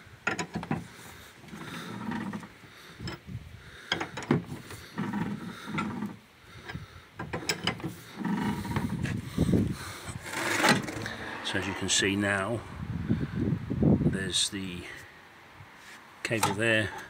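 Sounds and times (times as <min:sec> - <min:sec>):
low grinding: 0:00.3 - 0:13.4.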